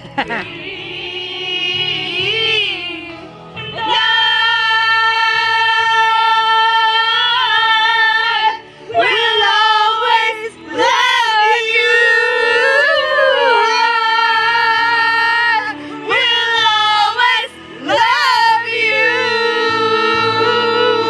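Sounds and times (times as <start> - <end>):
woman singing: 0.3 - 21.0
singer breathing: 8.6 - 9.0, 15.7 - 16.1.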